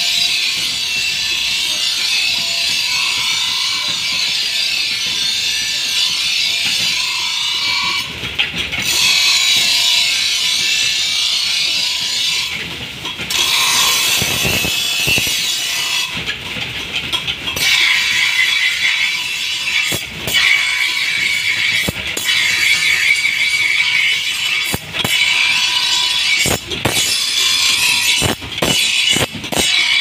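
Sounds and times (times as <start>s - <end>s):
grinding wheel motor whine: 0.0s - 30.0s
blade rasping on grinding wheel: 8.8s - 12.6s, 13.3s - 16.2s, 17.6s - 30.0s.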